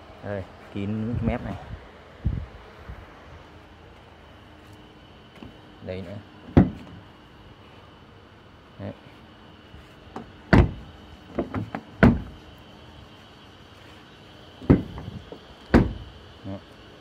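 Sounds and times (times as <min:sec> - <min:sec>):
car door thudding shut: 0:06.5 - 0:07.0, 0:10.2 - 0:12.4, 0:14.6 - 0:16.1.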